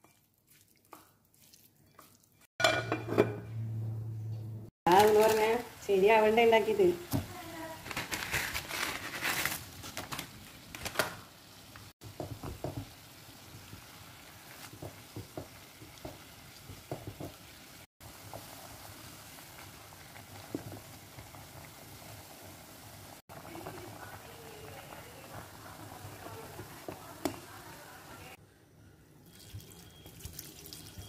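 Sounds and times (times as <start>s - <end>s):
water boiling in a pan: 10.7s - 28.4s
wooden spatula knocking: 12.0s - 12.9s, 14.7s - 17.5s.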